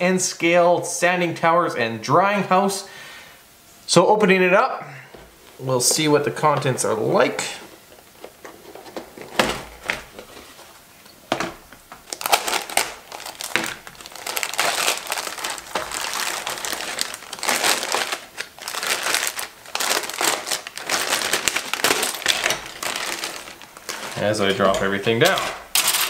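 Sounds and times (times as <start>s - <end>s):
plastic bag crinkling: 11.8s - 26.0s.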